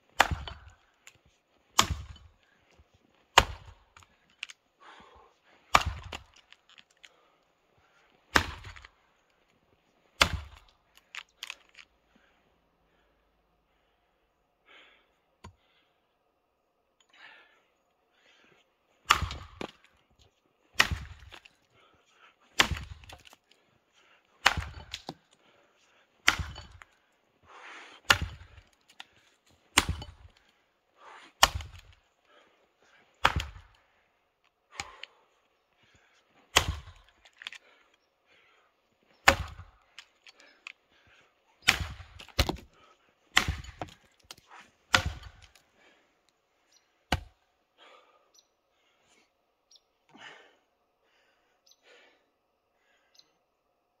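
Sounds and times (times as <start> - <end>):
axe chopping log: 0.1 - 0.8, 1.7 - 2.3, 3.3 - 4.5, 5.7 - 6.6, 8.3 - 8.9, 10.2 - 11.6, 19.0 - 19.9, 20.7 - 21.6, 22.6 - 23.4, 24.4 - 25.3, 26.2 - 27.0, 28.0 - 29.1, 29.7 - 30.4, 31.4 - 32.0, 33.2 - 33.8, 36.5 - 37.6, 39.2 - 40.1, 41.6 - 45.6, 47.1 - 47.4.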